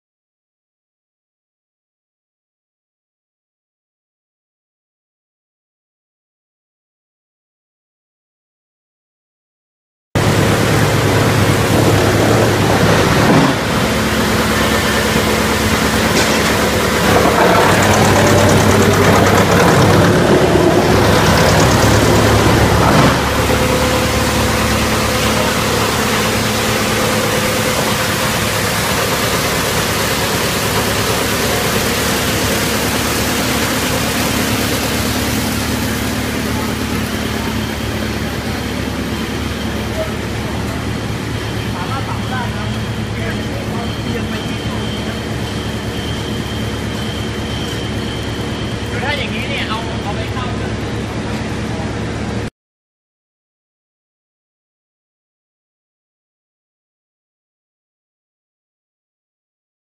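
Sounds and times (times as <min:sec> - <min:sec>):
wood chipper running: 0:10.2 - 0:52.5.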